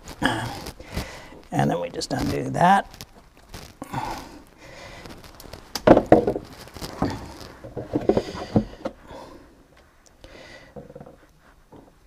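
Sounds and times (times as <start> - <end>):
plastic bucket shifted: 5.8 - 9.0.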